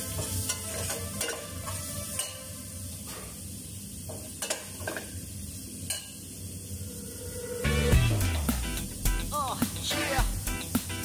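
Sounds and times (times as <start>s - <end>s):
utensil stirring food: 0.0s - 2.7s
food sizzling in a pot: 0.0s - 11.0s.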